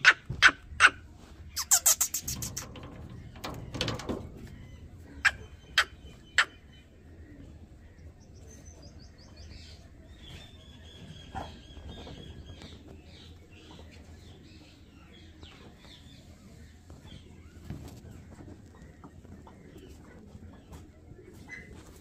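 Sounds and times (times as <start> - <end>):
sharp bird calls: 0.0 - 3.9, 4.7 - 12.7.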